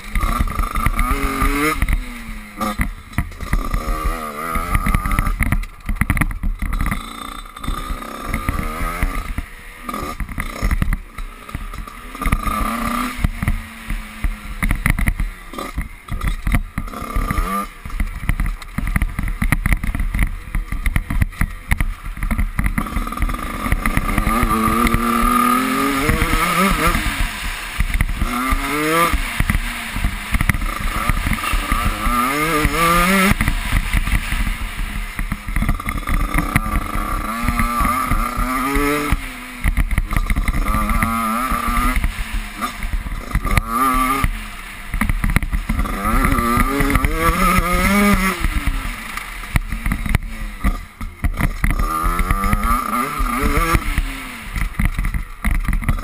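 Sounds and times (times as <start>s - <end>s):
knocks from rough track: 0.0s - 56.0s
off-road motorcycle engine revving: 0.0s - 56.0s.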